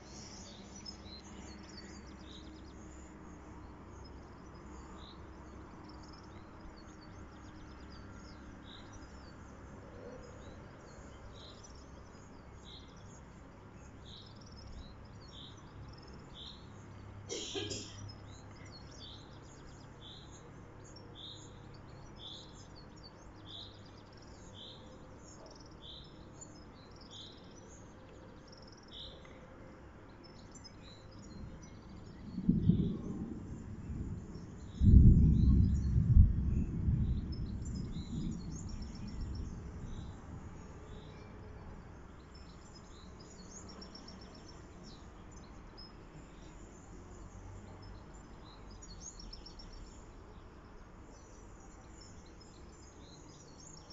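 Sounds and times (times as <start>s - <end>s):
bird calling: 17.3s - 18.0s
thunder rumbling: 32.2s - 40.5s.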